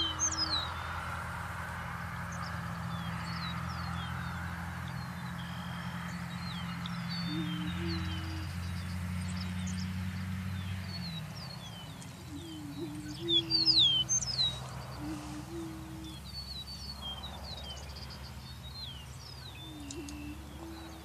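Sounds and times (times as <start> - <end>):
low steady hum: 0.0 - 21.0
prairie chickens booming: 0.0 - 21.0
high downward-sliding chirps: 19.4 - 21.0.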